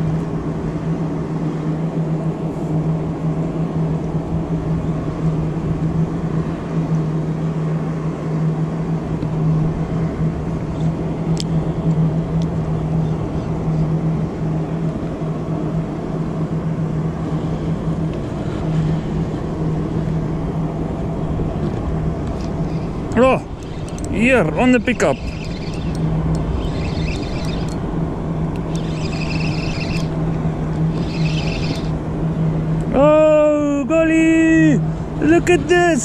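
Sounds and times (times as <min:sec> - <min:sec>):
outboard motor idling: 0:22.3 - 0:32.7.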